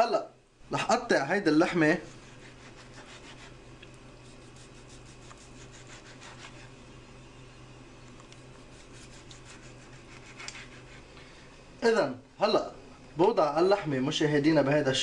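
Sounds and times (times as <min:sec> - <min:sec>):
knife sawing through steak: 0:02.2 - 0:03.6, 0:04.2 - 0:06.7, 0:08.6 - 0:11.1.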